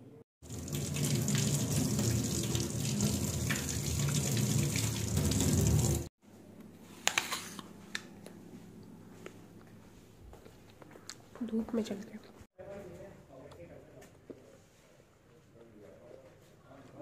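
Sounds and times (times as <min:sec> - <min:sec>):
tap water running into sink: 0:00.4 - 0:06.1.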